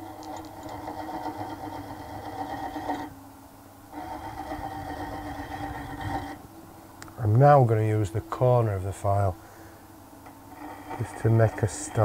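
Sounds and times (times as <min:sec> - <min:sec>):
file scraping spinning steel bolt: 0:00.0 - 0:03.1, 0:03.9 - 0:06.4, 0:10.5 - 0:12.0.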